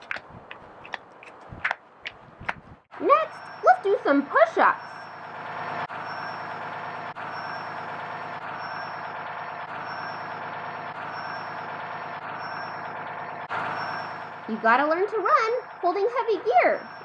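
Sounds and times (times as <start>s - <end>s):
fire truck engine idling: 0.0s - 17.0s
faint high beeps: 12.4s - 12.8s, 13.8s - 14.2s.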